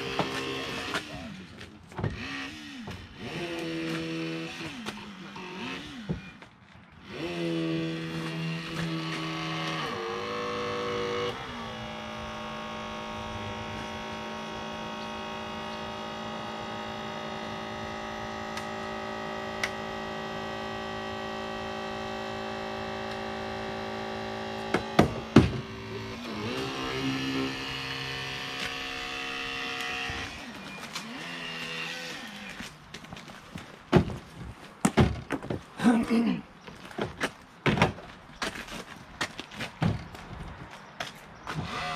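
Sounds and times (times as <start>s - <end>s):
motor humming: 7.0s - 32.8s
loud knocks: 24.7s - 25.7s.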